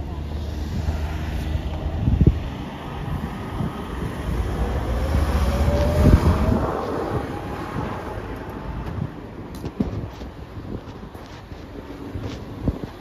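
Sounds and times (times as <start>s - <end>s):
vehicle passing: 0.0s - 9.2s
faint whine rising in pitch: 4.3s - 7.5s.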